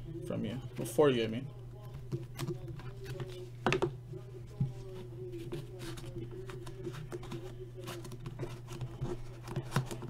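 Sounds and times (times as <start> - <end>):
steady low hum: 0.0 - 10.0
cardboard box rustling and tapping: 5.5 - 10.0.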